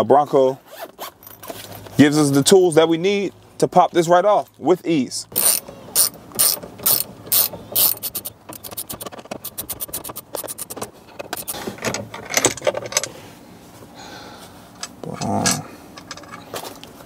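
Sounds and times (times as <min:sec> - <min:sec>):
ratchet wrench clicking: 0:05.3 - 0:10.8.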